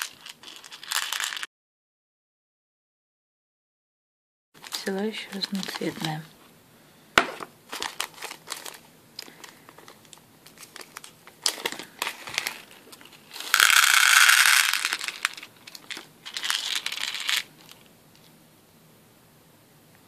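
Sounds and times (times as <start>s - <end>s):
glass beads pouring into tray: 0.0s - 1.5s, 13.3s - 17.5s
plastic bag crinkling: 0.0s - 1.5s, 4.6s - 6.3s, 7.7s - 17.9s.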